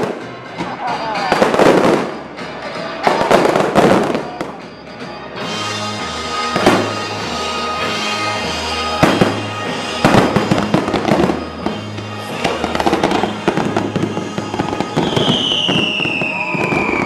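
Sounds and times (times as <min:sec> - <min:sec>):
music with low notes: 0:00.0 - 0:15.5
fireworks crackling: 0:00.0 - 0:17.0
falling whistle-like tone: 0:15.0 - 0:17.0.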